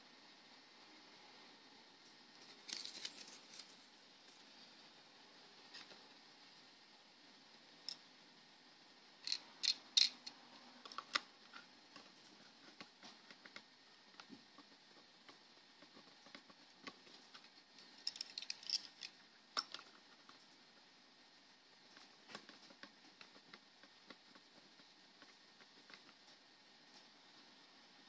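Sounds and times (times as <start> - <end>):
toy car clicking in fingers: 9.2 - 11.3.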